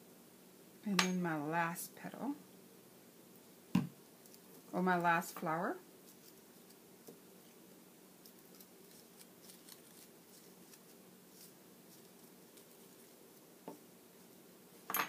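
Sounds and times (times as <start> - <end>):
low steady hum: 0.0 - 15.0
paper crinkling and ticking: 8.2 - 13.2.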